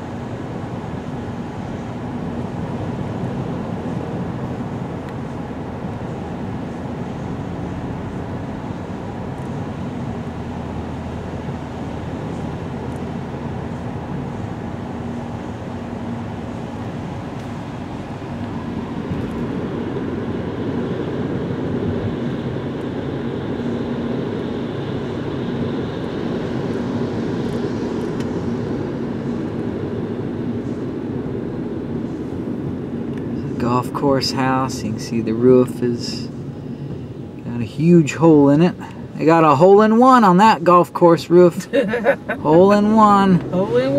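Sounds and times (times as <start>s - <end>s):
car engine hum: 0.0s - 43.9s.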